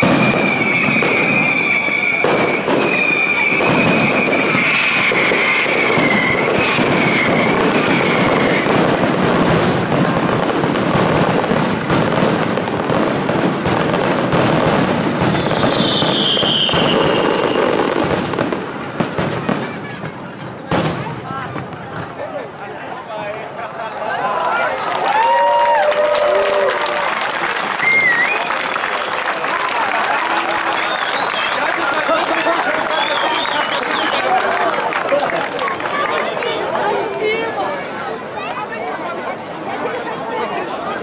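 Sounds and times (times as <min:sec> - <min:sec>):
firework high whistle: 0:00.0 - 0:09.1, 0:15.1 - 0:18.2, 0:27.8 - 0:28.6, 0:30.6 - 0:32.1, 0:32.7 - 0:34.3
falling firework whistle: 0:00.0 - 0:09.6, 0:14.6 - 0:18.5, 0:27.8 - 0:28.7, 0:30.4 - 0:34.4
fireworks bursts and crackling: 0:00.0 - 0:23.5, 0:25.0 - 0:41.0.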